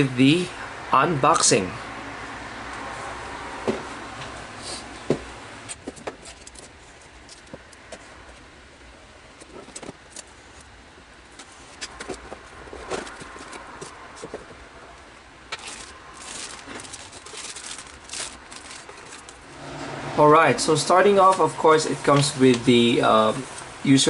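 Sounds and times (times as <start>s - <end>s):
plastic bag rustling: 11.3s - 14.6s, 15.5s - 19.5s.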